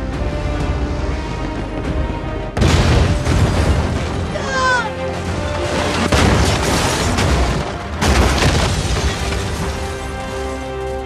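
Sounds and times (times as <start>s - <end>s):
orchestral film score: 0.0s - 11.0s
heavy rumble of collapse: 0.6s - 11.0s
crashing booms: 2.6s - 4.4s, 5.9s - 10.1s.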